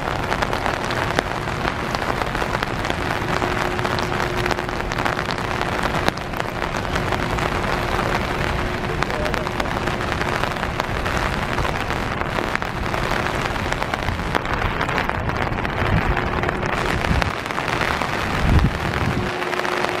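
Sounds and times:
water rushing through spillway: 0.0 - 20.0
wind on microphone: 0.0 - 20.0.

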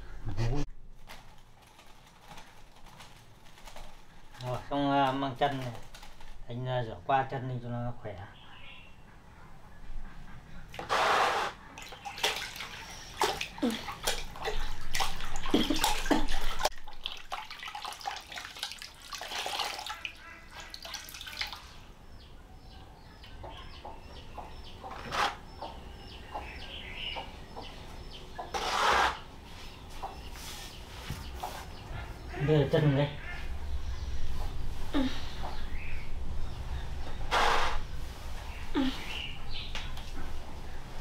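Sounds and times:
water splashing and pouring: 11.8 - 21.8.

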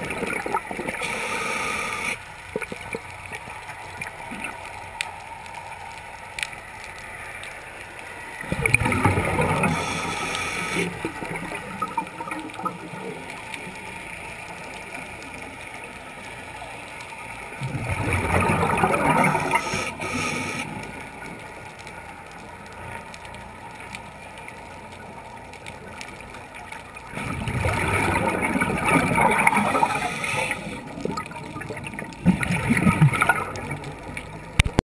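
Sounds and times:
diver's exhaled bubbles gurgling: 0.0 - 4.7, 8.4 - 13.9, 17.6 - 20.6, 27.0 - 34.8.

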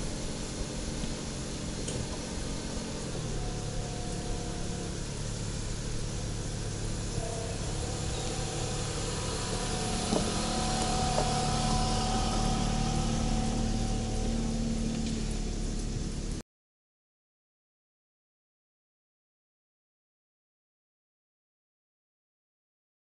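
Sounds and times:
car driving slowly past: 0.0 - 16.4.

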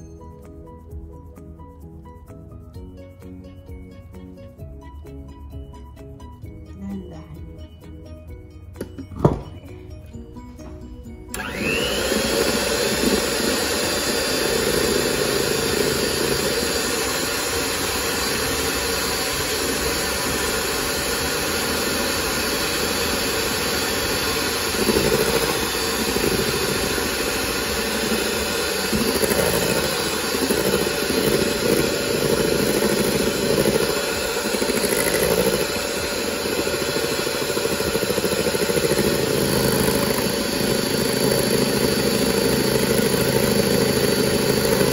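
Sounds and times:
electric hand mixer whirring: 8.8 - 44.9
beaters whipping cream in metal bowl: 11.3 - 44.9.

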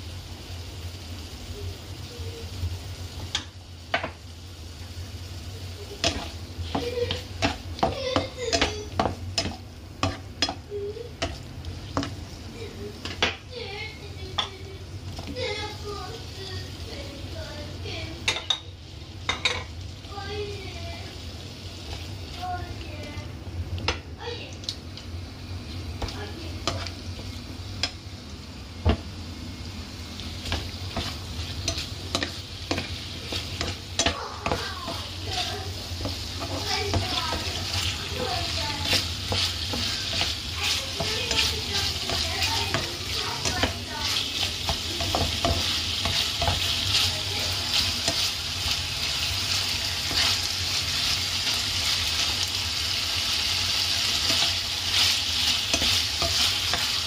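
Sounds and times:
sauce sizzling: 0.0 - 57.0
spatula scraping a frying pan: 30.4 - 52.3, 53.9 - 57.0.

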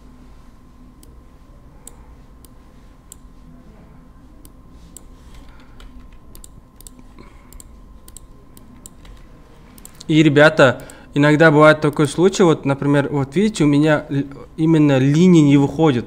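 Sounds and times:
faint steady hum: 0.0 - 16.0
computer mouse and keyboard clicks: 4.4 - 10.1.

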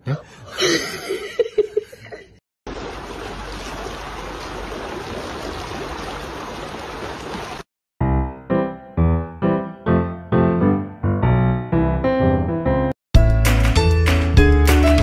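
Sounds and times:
fountain water jet gushing: 2.7 - 7.6
piano tune: 8.0 - 15.0.

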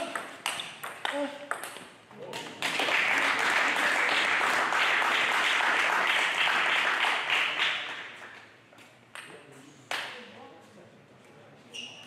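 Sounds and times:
spectators applauding: 2.6 - 8.4.

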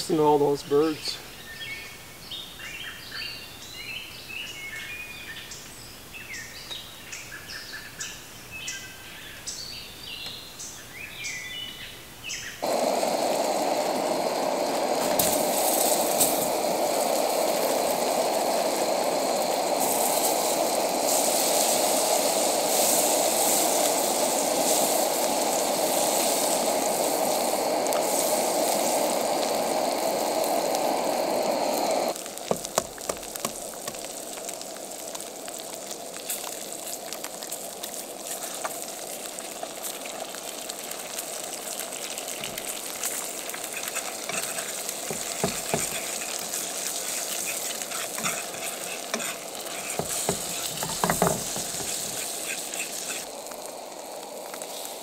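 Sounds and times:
food sizzling in a pan: 0.0 - 55.0
steady rushing noise: 12.6 - 32.2
fork scraping a pan: 42.5 - 53.3.

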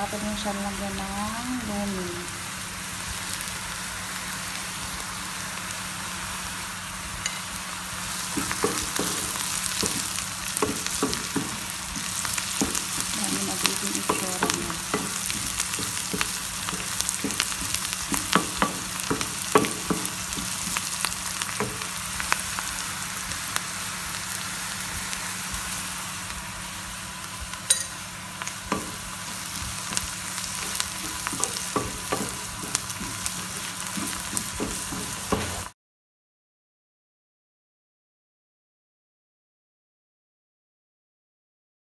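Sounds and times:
onions sizzling in oil: 0.0 - 35.8
wooden spoon scraping pan: 8.4 - 21.0, 28.8 - 35.7.

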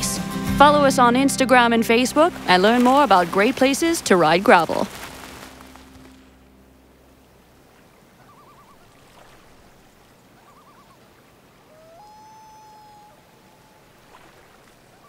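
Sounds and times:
background music: 0.0 - 7.0
faint outdoor background noise: 0.0 - 15.0
warbling bird calls: 8.0 - 15.0.

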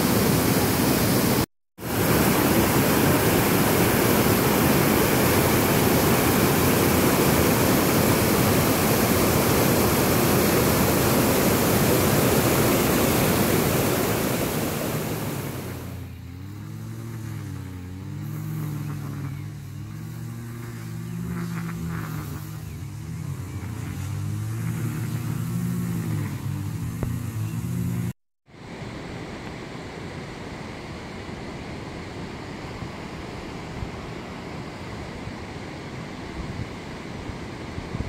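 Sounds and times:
waterfall rushing: 0.0 - 16.0
low wavering hum: 15.2 - 28.2.

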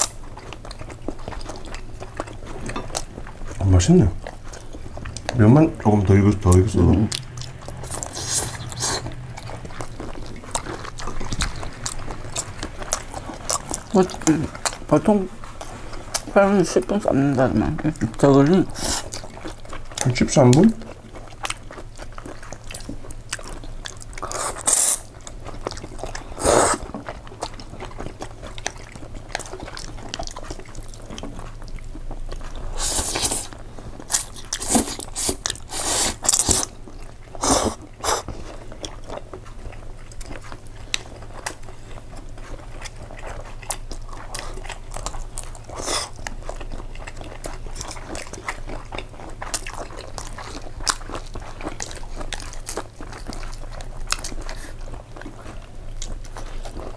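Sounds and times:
wet chewing with mouth clicks: 0.0 - 56.9
slurping noodles: 26.3 - 27.0, 32.7 - 36.7, 37.4 - 38.3.

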